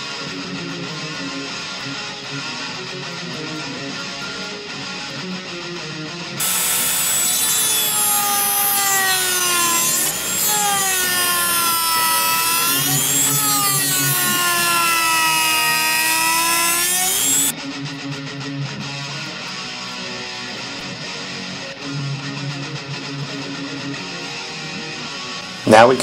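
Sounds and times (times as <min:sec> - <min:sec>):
rotary tool grinding plastic: 0:06.4 - 0:17.5.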